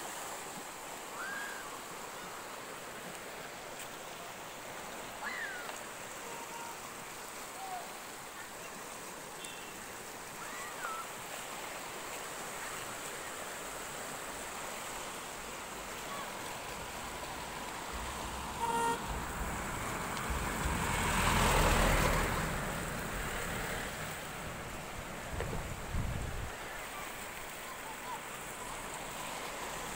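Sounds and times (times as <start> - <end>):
river water rushing: 0.0 - 29.9
vehicle horn toot: 6.2 - 6.8, 18.4 - 19.3
vehicle passing: 17.2 - 24.8.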